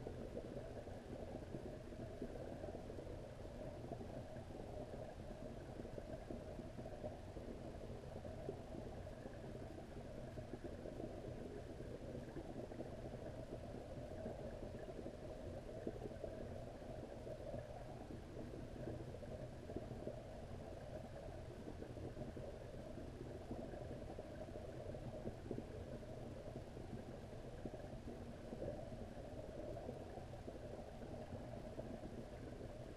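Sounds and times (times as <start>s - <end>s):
muffled underwater rumble: 0.0s - 32.9s.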